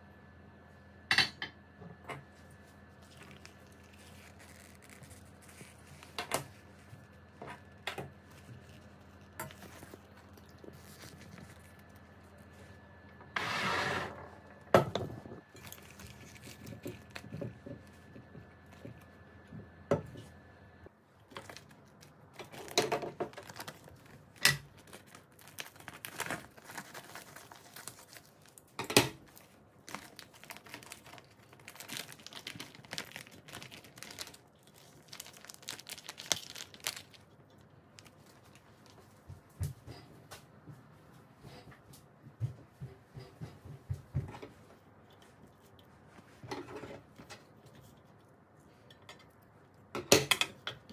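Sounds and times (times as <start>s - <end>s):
plastic bag crinkling: 2.9s - 12.8s, 15.4s - 19.2s, 21.1s - 39.2s.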